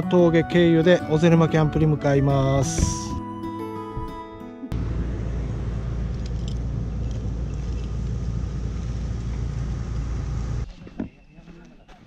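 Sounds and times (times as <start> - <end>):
bus engine rumbling: 4.7 - 10.7.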